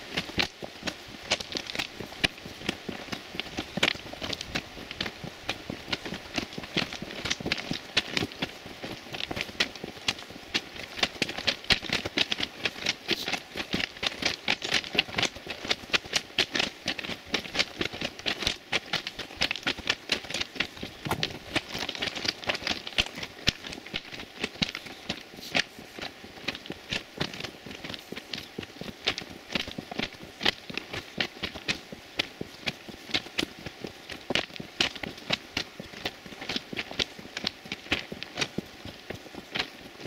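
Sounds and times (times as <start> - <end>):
footsteps crunching on gravel: 20.8 - 23.7.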